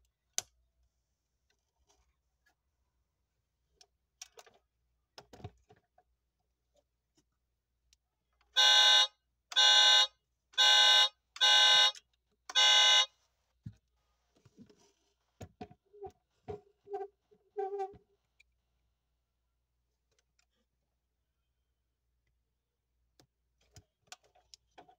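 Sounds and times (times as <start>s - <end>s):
toy car horn honks: 8.6s - 13.1s.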